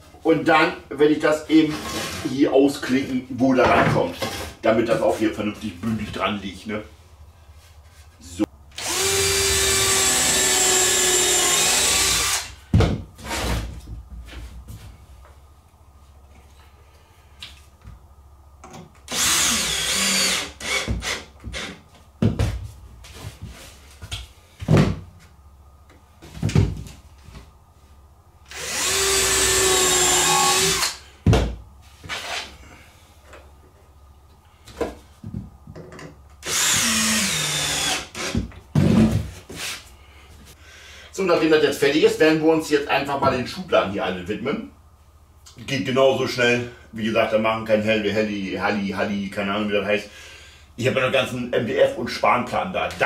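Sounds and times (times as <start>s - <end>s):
handheld power tool running: 8.8s - 12.6s, 19.1s - 21.7s, 28.5s - 31.0s, 36.4s - 38.4s
workpiece knocks and clatter: 34.8s - 36.2s.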